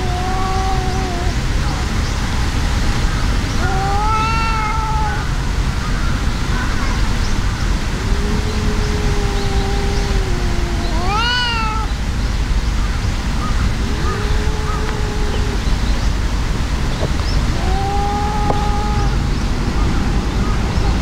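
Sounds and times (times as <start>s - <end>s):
cat sharp cry: 0.0s - 1.9s, 3.5s - 5.4s, 7.9s - 12.0s, 13.4s - 15.8s, 17.4s - 19.3s
cats growling and yowling: 0.0s - 2.0s, 3.2s - 5.4s, 7.7s - 12.0s, 13.3s - 19.3s.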